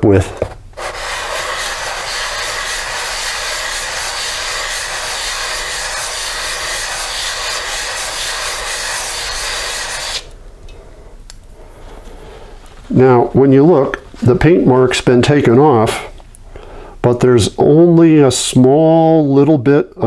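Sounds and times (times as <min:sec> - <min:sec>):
sanding on wet paper over glass: 0:00.8 - 0:10.3.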